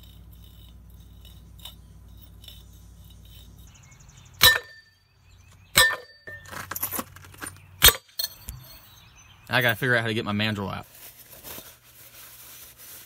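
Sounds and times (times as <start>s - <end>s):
metallic ring: 0.0s - 3.8s, 4.4s - 5.1s, 5.8s - 7.0s, 7.8s - 8.9s
low steady hum: 0.0s - 9.9s.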